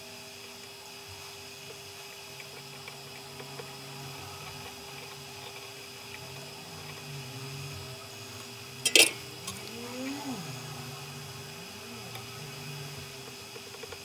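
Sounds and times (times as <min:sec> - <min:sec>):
faint electrical hum: 0:00.0 - 0:14.0
metallic clink of tools: 0:08.8 - 0:09.2
low tone rising and falling: 0:09.4 - 0:13.3.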